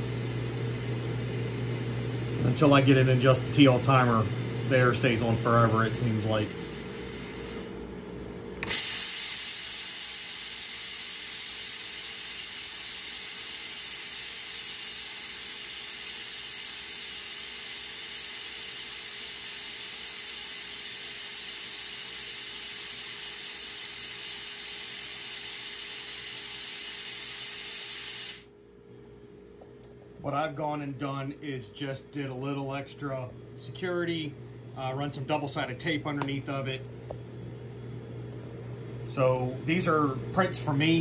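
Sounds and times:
compressed air hissing: 6.2s - 7.8s, 8.6s - 28.5s.

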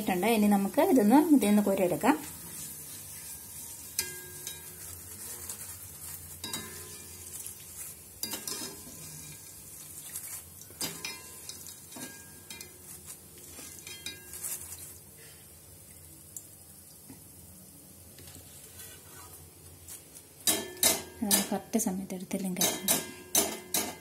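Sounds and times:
deep-frying sizzle: 0.0s - 24.0s
skimmer clinking against metal pan: 3.9s - 4.8s.

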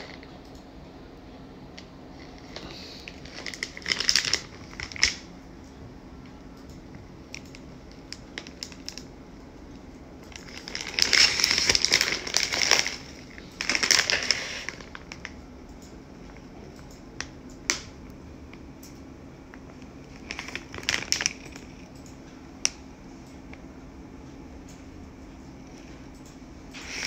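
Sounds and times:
plastic bag crinkling: 2.1s - 5.3s, 10.3s - 15.4s, 19.9s - 21.9s.

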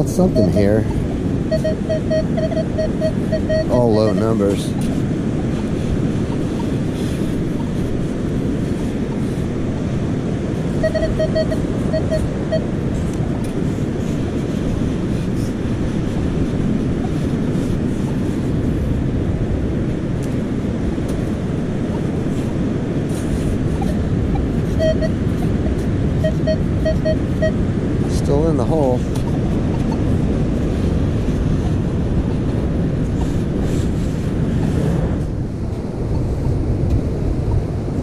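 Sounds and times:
wind buffeting microphone: 0.0s - 38.0s
metal detector beeps: 0.3s - 4.8s, 10.7s - 12.8s, 23.8s - 27.6s.

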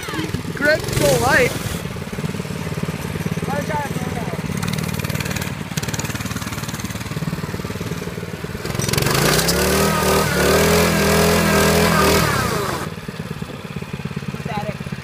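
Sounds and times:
minibike engine revving: 0.0s - 15.0s
wheel spinning in dirt: 0.0s - 15.0s.

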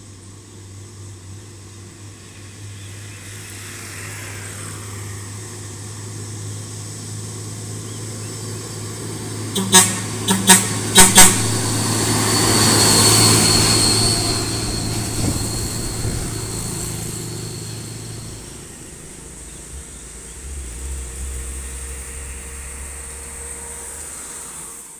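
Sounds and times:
lower vehicle engine: 0.0s - 24.9s
truck diesel engine pulling: 0.0s - 24.9s
short horn toots: 9.5s - 12.7s
turbo whistle: 9.5s - 24.9s.

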